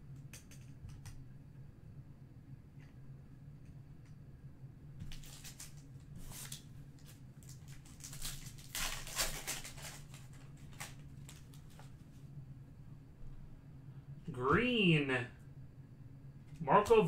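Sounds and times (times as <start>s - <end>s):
foil wrapper crinkling and tearing: 5.1s - 11.9s.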